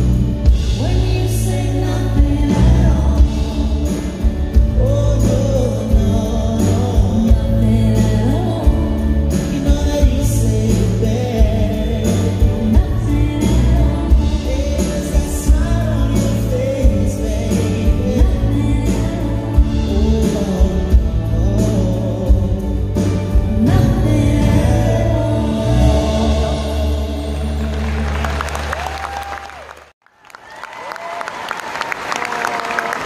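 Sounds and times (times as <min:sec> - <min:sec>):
person singing: 0:00.0 - 0:28.6
live band playing: 0:00.0 - 0:29.6.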